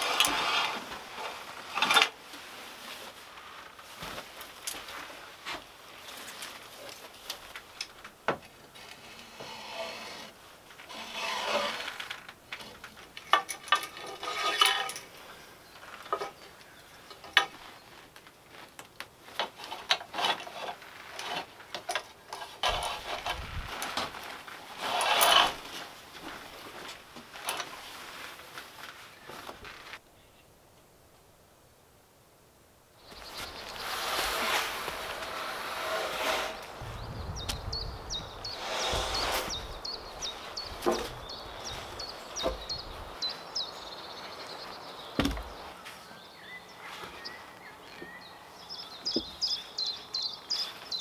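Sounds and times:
curtain fabric rustling: 0:00.0 - 0:08.0, 0:22.4 - 0:30.0, 0:33.1 - 0:36.8.

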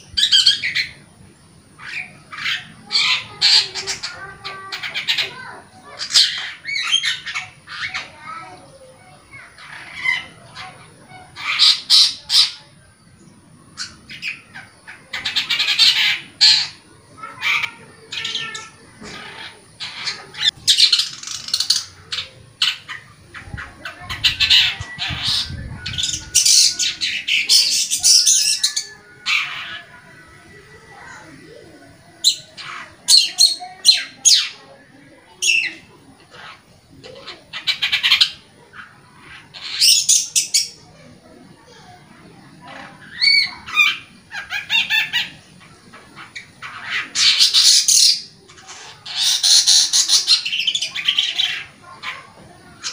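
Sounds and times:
bird singing scratchy notes: 0:13.8 - 0:34.8.

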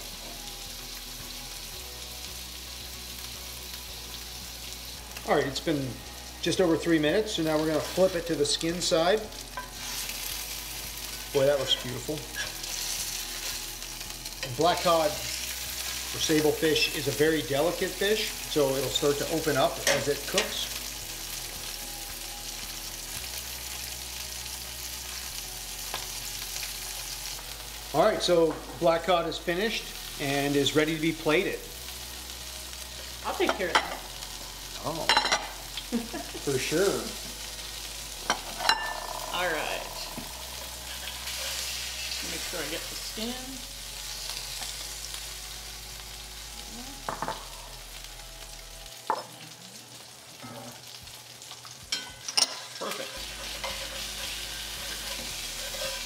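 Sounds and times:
fish sizzling in oil: 0:00.0 - 0:56.0.

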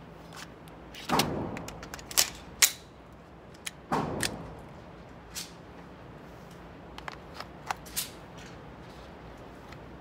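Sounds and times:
handgun metallic clicks: 0:01.6 - 0:02.9.

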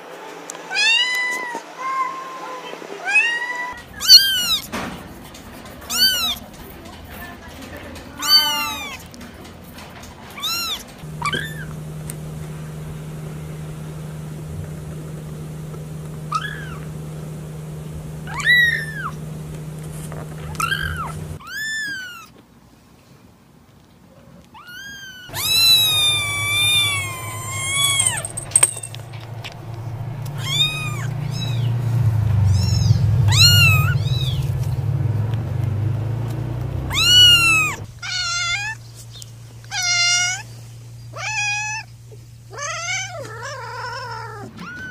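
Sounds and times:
kittens mewing: 0:03.1 - 0:04.8, 0:05.8 - 0:06.5, 0:10.4 - 0:22.3, 0:24.6 - 0:34.6, 0:36.8 - 0:38.8, 0:39.6 - 0:40.5, 0:41.1 - 0:44.9
low steady hum: 0:11.0 - 0:21.4, 0:25.3 - 0:43.2.

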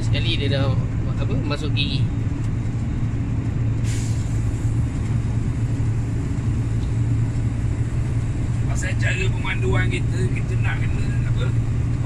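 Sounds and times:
diesel engine drone: 0:00.0 - 0:12.0
road noise: 0:00.0 - 0:12.0
brief hiss: 0:03.8 - 0:04.4.

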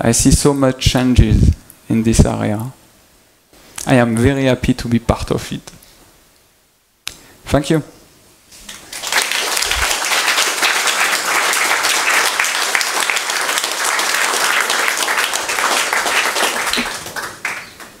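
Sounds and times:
audience applauding: 0:08.7 - 0:18.0.

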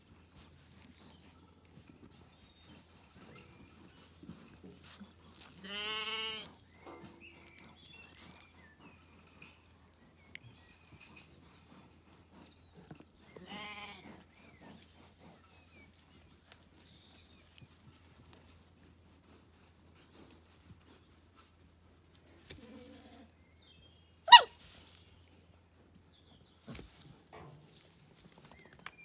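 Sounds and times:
sheep bleating: 0:05.6 - 0:06.5.

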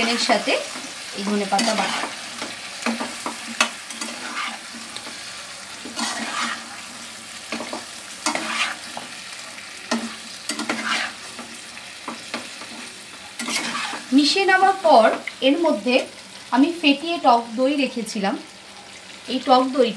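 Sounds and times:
spatula scraping frying pan: 0:00.0 - 0:15.3
frying sizzle: 0:00.0 - 0:19.9.

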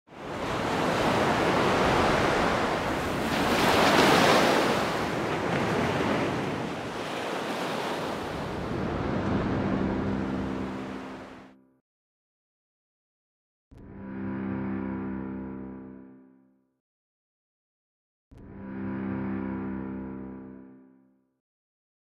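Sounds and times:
ocean surf rushing: 0:00.2 - 0:11.5.

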